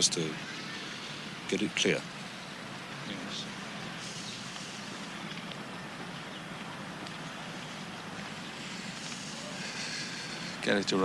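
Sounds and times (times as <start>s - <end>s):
even hiss: 0.0s - 5.5s, 8.2s - 11.0s.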